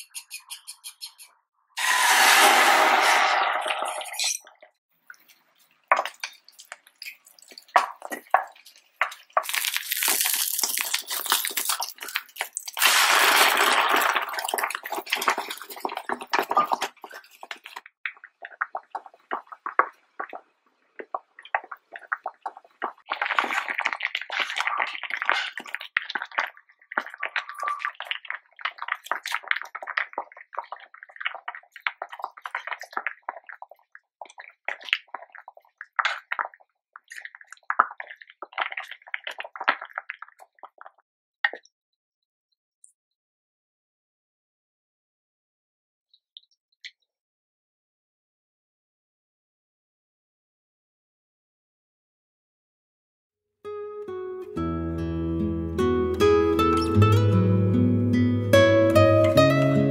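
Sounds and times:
soup bubbling at a rolling boil: 12.8s - 41.0s.

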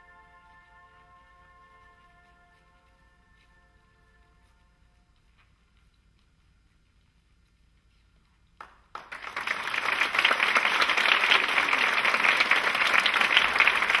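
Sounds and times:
audience applause: 8.6s - 14.0s.

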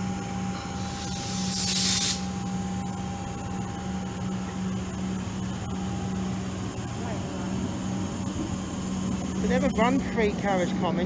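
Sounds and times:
electric train humming: 0.0s - 11.0s
air brakes hissing: 0.6s - 2.4s.

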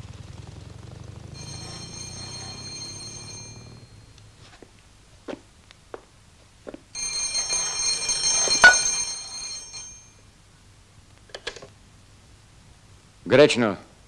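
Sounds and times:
telephone bell ringing: 1.4s - 4.1s, 7.0s - 10.2s.

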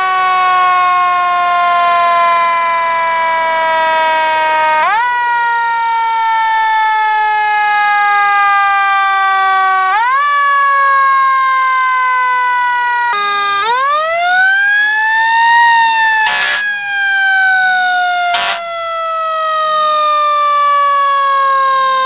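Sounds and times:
fire engine siren: 0.0s - 22.0s
short bursts of noise: 16.2s - 16.7s, 18.3s - 18.6s.

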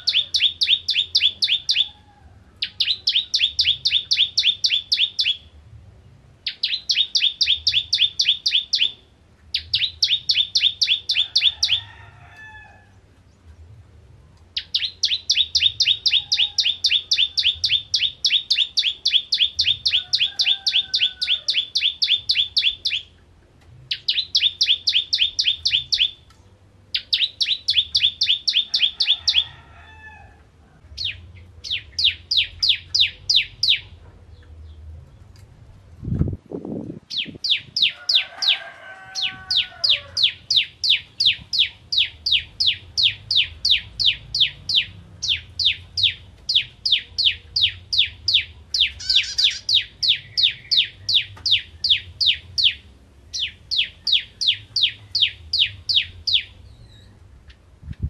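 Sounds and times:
bird singing rattling notes: 23.9s - 26.3s, 39.2s - 57.6s
faint lower bird calls: 39.2s - 57.3s.

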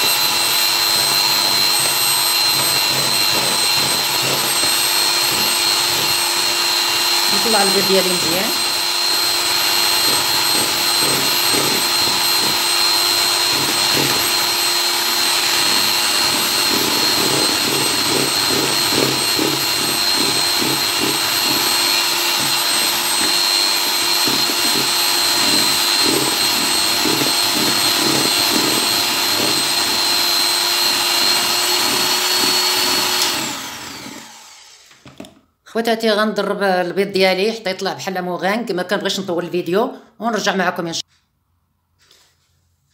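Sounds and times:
electric hand mixer whining: 0.0s - 35.2s.

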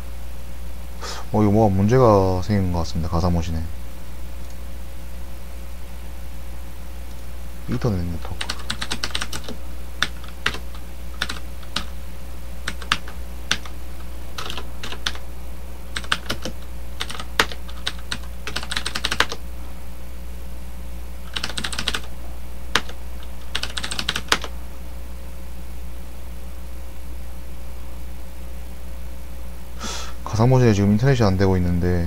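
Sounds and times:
steady low hum: 0.0s - 32.0s
computer keyboard typing: 8.3s - 11.9s, 12.6s - 13.8s, 14.4s - 15.2s, 15.9s - 19.4s, 21.3s - 22.1s, 22.7s - 24.5s.

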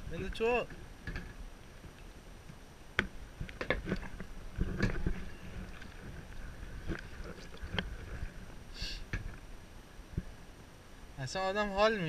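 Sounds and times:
paddle splashing against boat: 2.9s - 9.5s.

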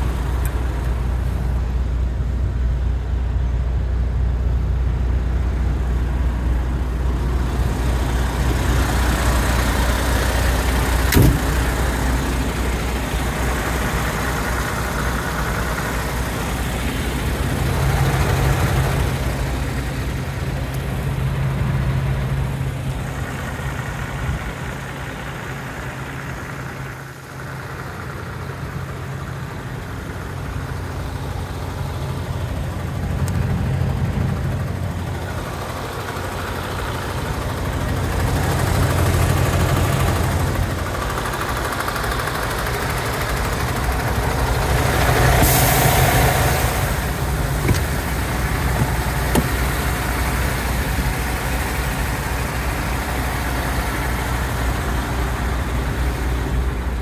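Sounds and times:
truck diesel engine idling: 0.0s - 57.0s
sharp click: 11.1s - 11.6s.

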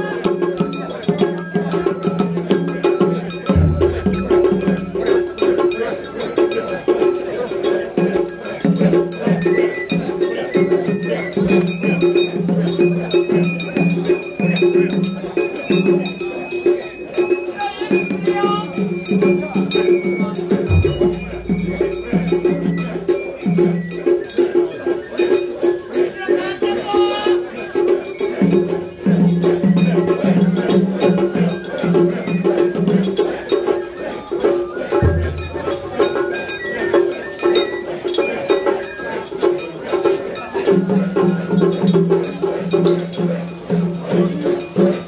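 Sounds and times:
metallic percussion strikes: 0.0s - 45.0s
drum strikes: 0.2s - 7.2s, 18.2s - 24.4s, 34.9s - 36.9s
small metal hand gong: 1.9s - 6.7s, 19.7s - 24.3s
held pitched tone: 3.4s - 5.6s, 19.7s - 23.8s.

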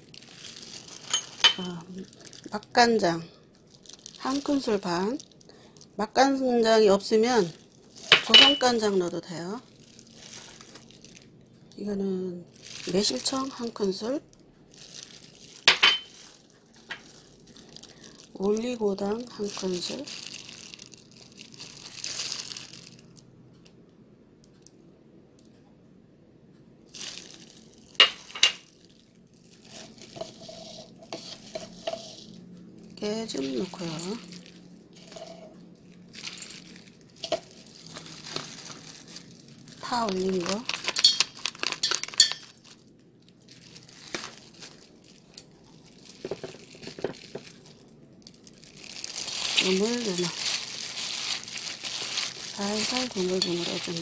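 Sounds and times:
plastic glove crinkling: 0.0s - 23.2s, 26.9s - 54.0s
soft rustles: 29.6s - 32.4s.

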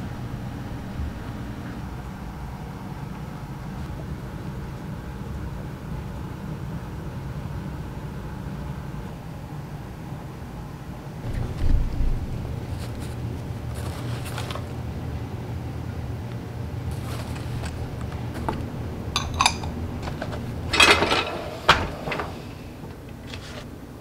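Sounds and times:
steady low hum: 0.0s - 24.0s
packing paper crinkling: 11.4s - 15.0s, 16.8s - 18.8s
glass bowls clinking: 19.2s - 22.6s.

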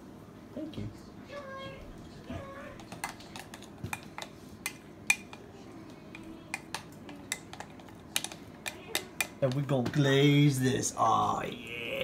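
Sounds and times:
spoon clinking against a bowl: 2.9s - 5.4s.

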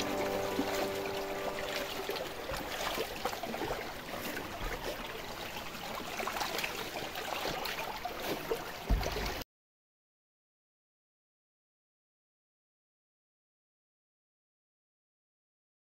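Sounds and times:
water rushing through rock channel: 0.0s - 9.4s
low thump: 8.9s - 9.4s.

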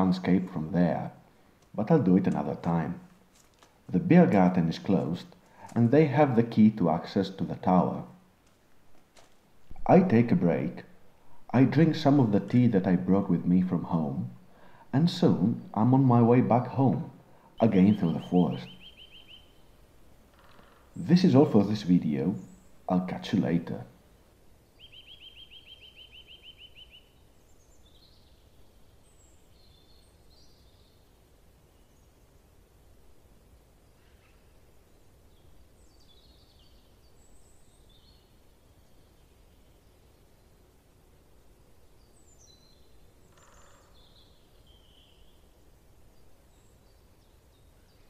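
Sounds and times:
faint woodland background: 0.0s - 48.0s
low background hum: 0.0s - 48.0s
songbird trilling: 16.4s - 19.7s, 24.8s - 27.2s, 42.2s - 45.4s
high bird chirps: 17.5s - 19.6s, 24.8s - 27.2s.

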